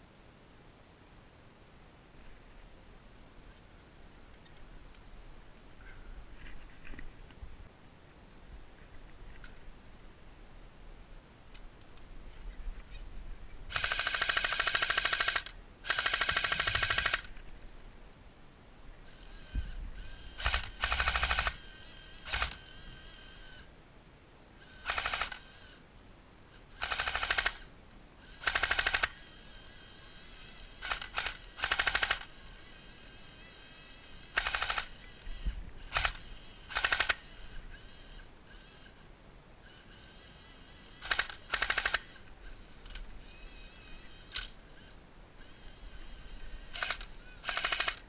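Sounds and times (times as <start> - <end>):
airsoft gun full-auto bursts: 13.7 - 17.3, 19.1 - 23.6, 24.6 - 25.8, 26.8 - 27.7, 28.3 - 38.9, 40.0 - 42.3, 46.5 - 48.0.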